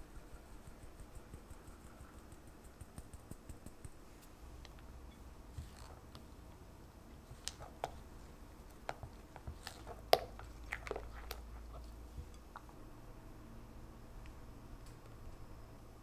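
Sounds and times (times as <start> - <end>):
spatula squelching in batter: 7.2 - 12.7.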